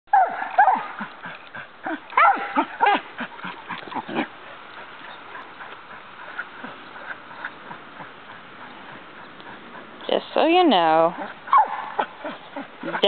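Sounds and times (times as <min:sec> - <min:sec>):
dog whining and yelping: 0:00.1 - 0:04.2, 0:11.2 - 0:13.0.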